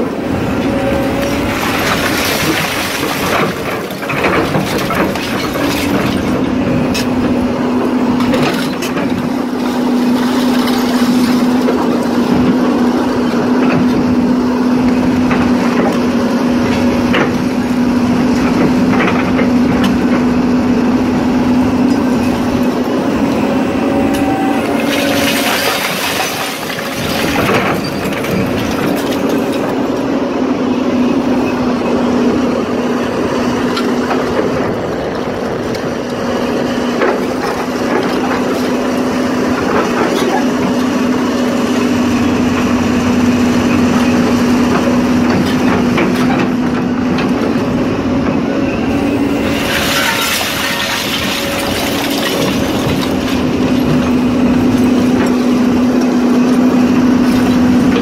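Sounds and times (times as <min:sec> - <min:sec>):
excavator engine and hydraulics humming: 0:00.0 - 0:58.0
rushing clattering: 0:01.2 - 0:07.1, 0:24.7 - 0:29.9, 0:49.0 - 0:55.4.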